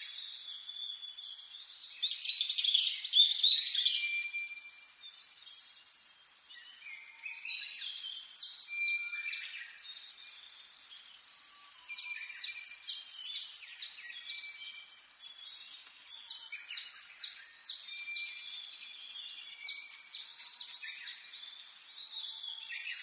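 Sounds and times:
small birds chirping: 0:00.0 - 0:23.0.

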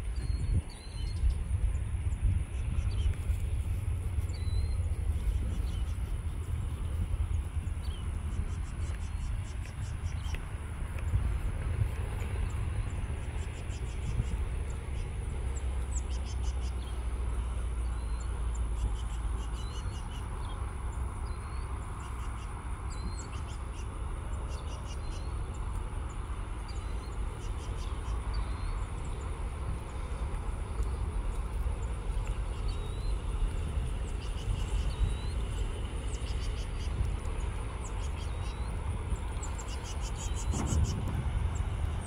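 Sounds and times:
songbird high call: 0:00.0 - 0:01.5, 0:04.2 - 0:10.5, 0:12.0 - 0:42.0
low rumble: 0:25.2 - 0:42.0.

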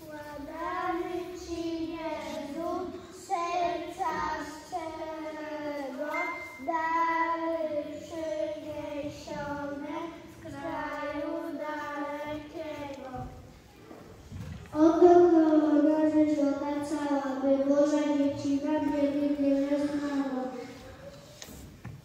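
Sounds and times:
young child singing: 0:00.0 - 0:13.4, 0:14.7 - 0:20.9.

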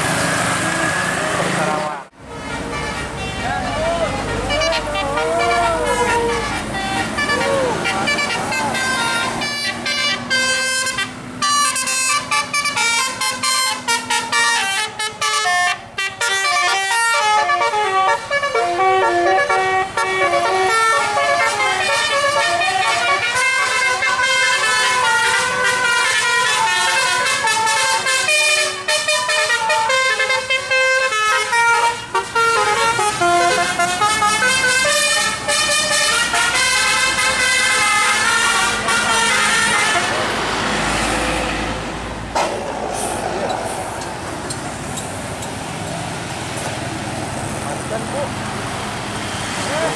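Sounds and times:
musical air horn playing tune: 0:02.3 - 0:40.3.

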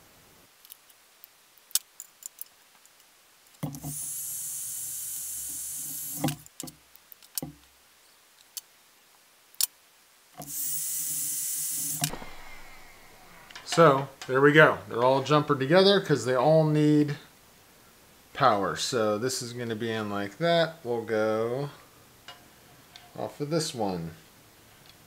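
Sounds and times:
heat gun blowing: 0:03.8 - 0:06.4, 0:10.4 - 0:13.7.

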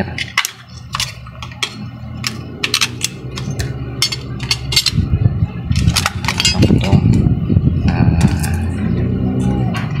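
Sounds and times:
steady low hum: 0:00.0 - 0:10.0
metal clicks and clinks: 0:00.2 - 0:05.0, 0:05.7 - 0:07.0.

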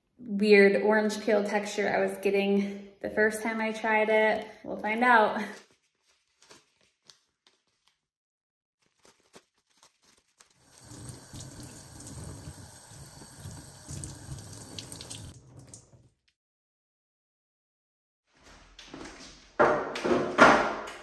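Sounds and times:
liquid pouring and splashing: 0:10.5 - 0:16.3.

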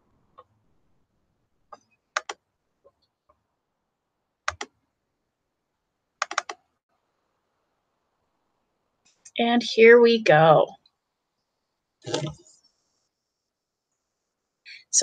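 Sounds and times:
computer mouse clicking: 0:01.7 - 0:02.4, 0:04.5 - 0:04.8, 0:06.2 - 0:06.6.

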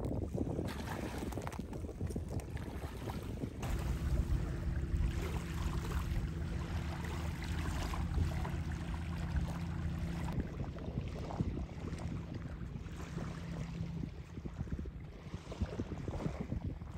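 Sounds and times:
wind rumbling on microphone: 0:00.0 - 0:16.9
faint low hum: 0:03.6 - 0:15.1.

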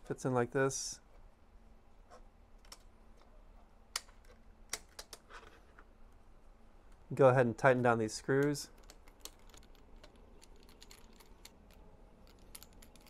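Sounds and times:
plastic parts clicking: 0:08.4 - 0:13.0.

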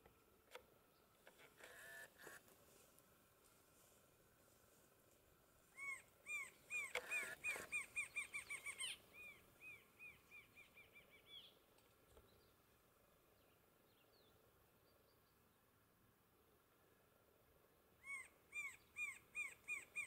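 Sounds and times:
bird singing nasal notes: 0:05.8 - 0:11.6.

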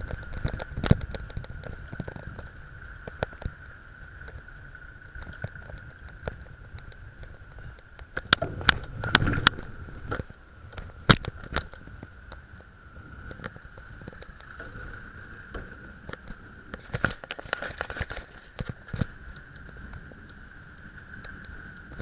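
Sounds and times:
road and wind rumble: 0:00.0 - 0:22.0
sharp knocks and rattles: 0:08.2 - 0:11.8.

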